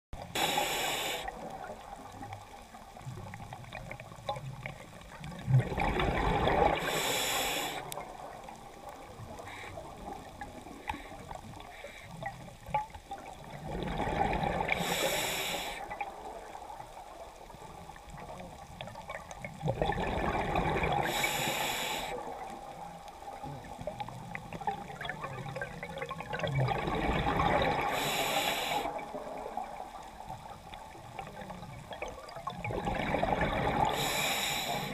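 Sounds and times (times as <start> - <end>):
exhaled bubbles hissing: 0.2 - 34.9
diver breathing through regulator: 0.3 - 1.5, 6.7 - 8.0, 14.7 - 15.9, 21.0 - 22.3, 27.8 - 29.0, 33.8 - 34.9.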